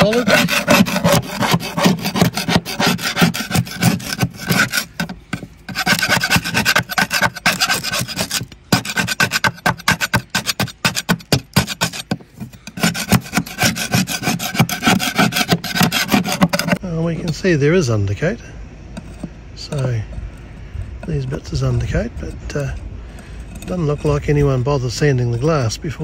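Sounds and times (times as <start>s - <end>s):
hand tool scraping deck coating: 0.0s - 16.8s.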